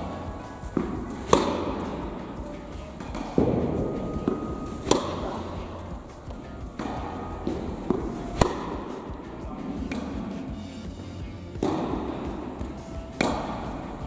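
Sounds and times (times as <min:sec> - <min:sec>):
racket hitting tennis ball: 0:00.0 - 0:14.0.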